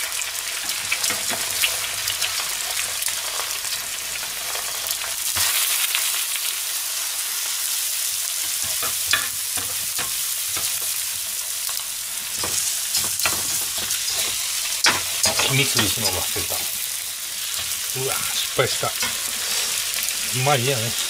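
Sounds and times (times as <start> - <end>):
food sizzling in frying pan: 0.0 - 21.0
metal spatula scraping pan: 12.4 - 16.6.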